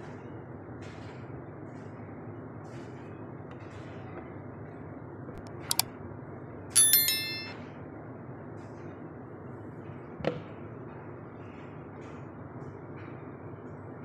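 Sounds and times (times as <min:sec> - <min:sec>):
electronic chime: 0:06.8 - 0:07.6.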